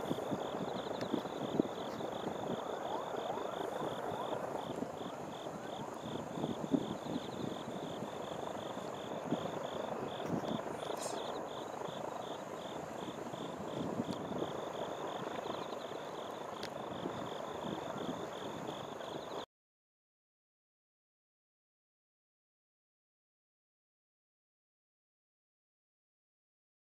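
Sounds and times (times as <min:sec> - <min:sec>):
insect chirping: 0:00.0 - 0:19.4
outdoor background rumble: 0:00.0 - 0:19.4.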